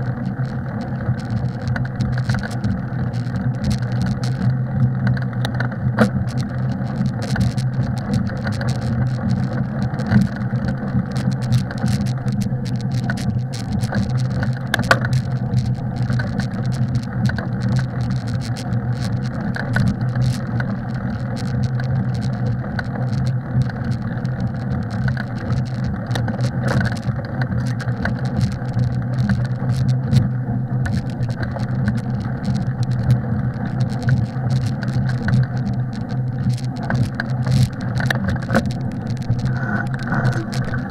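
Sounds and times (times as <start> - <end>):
bicycle rattles and knocks: 0.0 - 40.9
bicycle riding on snow: 0.0 - 40.9.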